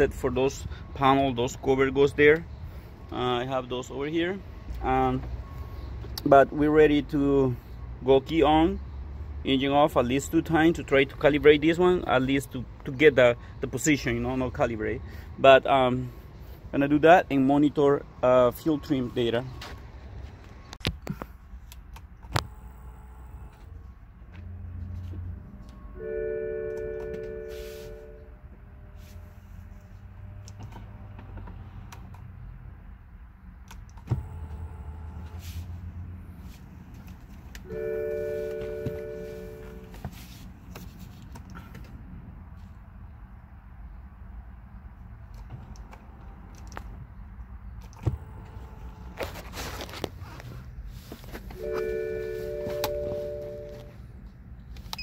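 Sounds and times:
dashboard warning chime: 0:17.4 - 0:20.8, 0:25.6 - 0:28.4, 0:37.6 - 0:40.0, 0:51.6 - 0:54.0
rustle of handling: 0:38.1 - 0:41.8, 0:49.0 - 0:54.0.

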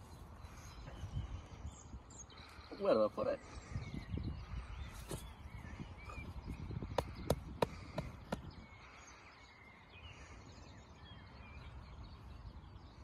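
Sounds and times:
wind rumble on microphone: 0:00.0 - 0:02.5, 0:03.2 - 0:09.0.

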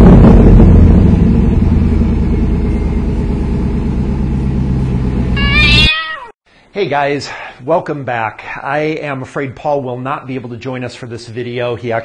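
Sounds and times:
car engine revving: 0:00.0 - 0:05.5
cat meowing: 0:05.4 - 0:06.4.

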